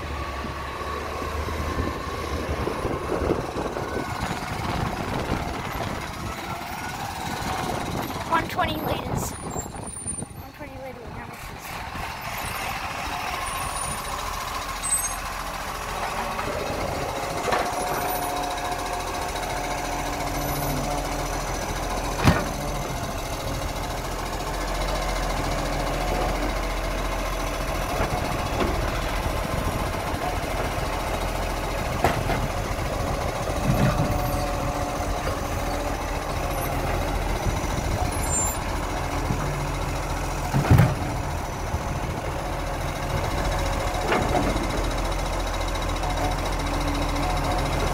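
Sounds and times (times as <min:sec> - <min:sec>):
garbage truck engine running: 0:00.0 - 0:47.9
clunks of arm and bin: 0:22.2 - 0:22.6, 0:40.5 - 0:41.2.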